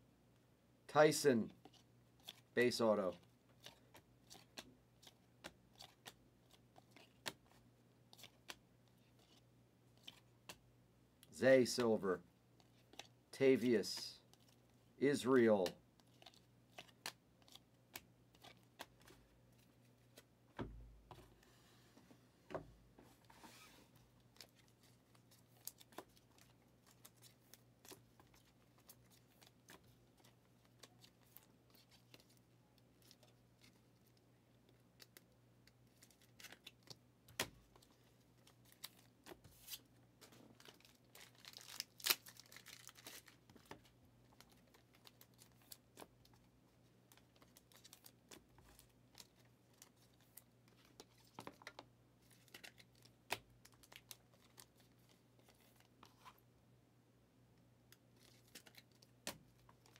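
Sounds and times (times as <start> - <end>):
faint room hum: 0.0 - 59.9
crinkling: 23.0 - 56.4, 57.9 - 59.9.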